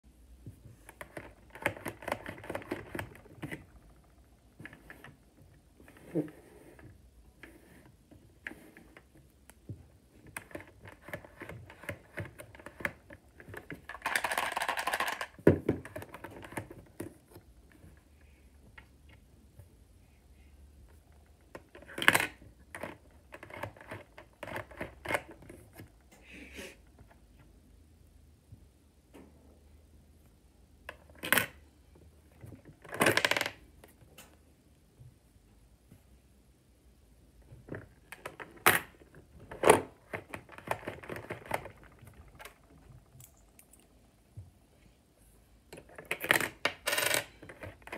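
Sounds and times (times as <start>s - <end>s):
plastic rattle: 10.2s - 17.1s
plastic bricks clicking: 10.4s - 16.7s.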